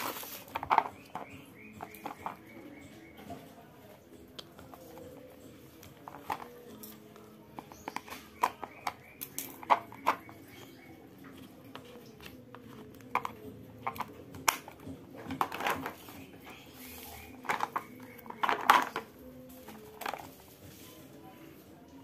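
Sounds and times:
plastic wrapping rustling: 0:00.0 - 0:00.9
plastic case clicking and clacking: 0:05.8 - 0:10.7, 0:11.6 - 0:16.3, 0:17.3 - 0:19.1.

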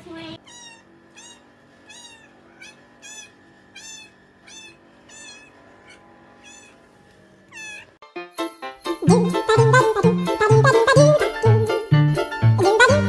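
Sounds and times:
cat meowing: 0:00.4 - 0:08.0.

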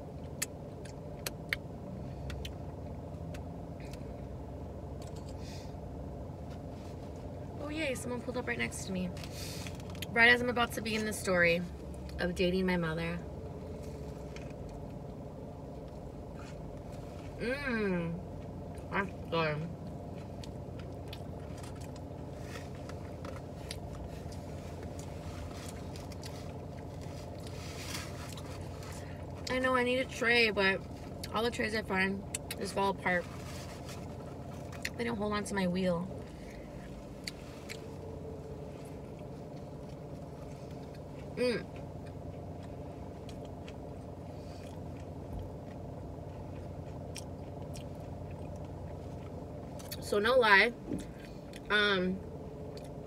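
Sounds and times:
car engine idling: 0:00.0 - 0:53.0
wet chewing and smacking: 0:00.1 - 0:04.1, 0:19.8 - 0:29.5, 0:37.0 - 0:50.0, 0:52.5 - 0:53.0.

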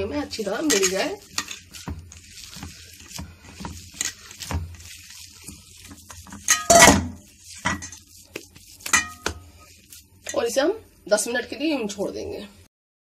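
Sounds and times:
hands mixing in a steel bowl: 0:00.0 - 0:12.5
bowl clanking: 0:06.2 - 0:08.1, 0:08.8 - 0:09.5.

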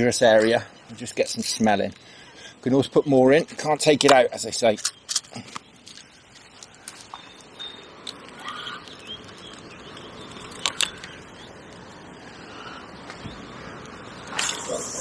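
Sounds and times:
faint bird calls: 0:05.3 - 0:15.0.

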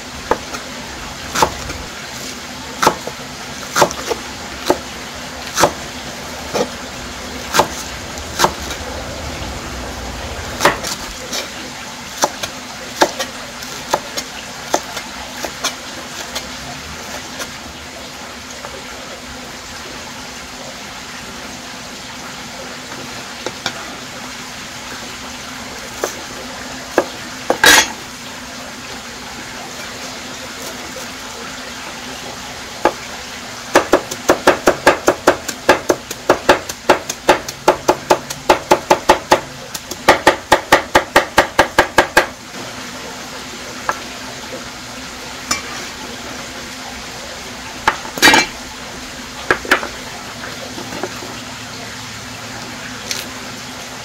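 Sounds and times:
kitchen utensils clinking: 0:27.5 - 0:28.0, 0:45.5 - 0:45.9, 0:47.9 - 0:48.6
utensils clattering: 0:27.6 - 0:28.0, 0:48.2 - 0:48.6.

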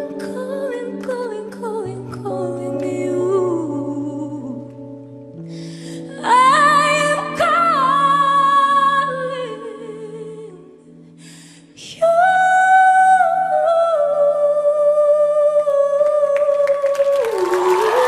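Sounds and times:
woman singing long notes: 0:00.0 - 0:05.0, 0:06.0 - 0:11.0, 0:11.7 - 0:18.0
applause: 0:16.4 - 0:18.0.

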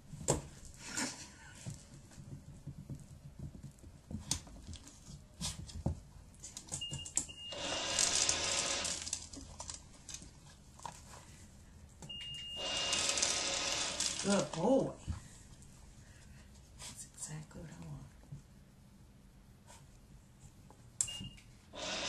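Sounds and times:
treat dispenser beeping: 0:06.8 - 0:08.9, 0:12.1 - 0:14.0.

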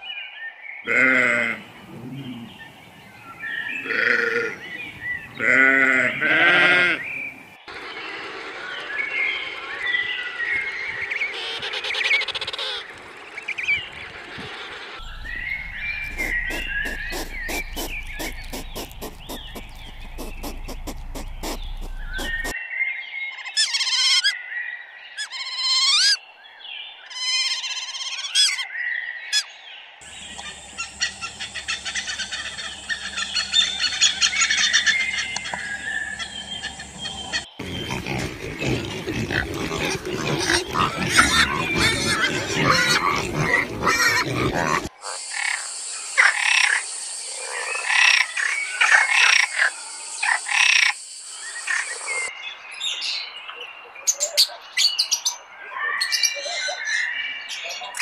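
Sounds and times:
dense fast animal calls: 0:15.0 - 0:22.6, 0:30.1 - 0:45.2
rapid clicking animal calls: 0:15.0 - 0:22.6, 0:30.1 - 0:45.6
sharp rising animal calls: 0:15.0 - 0:22.6, 0:30.1 - 0:44.9.

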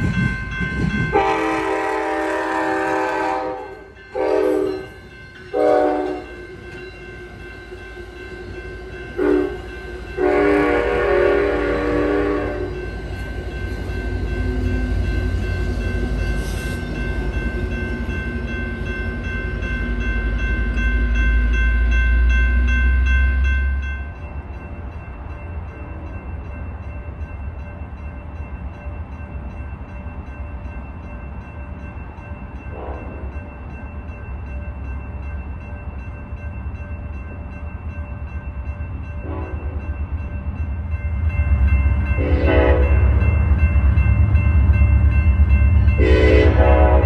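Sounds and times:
crossing bell ringing: 0:00.0 - 0:47.0
train horn blasts: 0:01.1 - 0:04.9, 0:05.5 - 0:06.4, 0:09.2 - 0:12.8, 0:32.7 - 0:33.3, 0:39.2 - 0:39.8, 0:42.2 - 0:43.2, 0:46.0 - 0:47.0.

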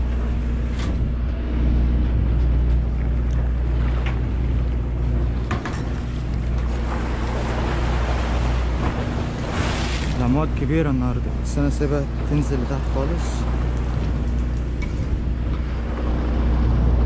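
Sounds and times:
boat engine humming: 0:00.0 - 0:17.0
water splashing along hull: 0:00.0 - 0:17.0
wind on microphone: 0:13.5 - 0:17.0.

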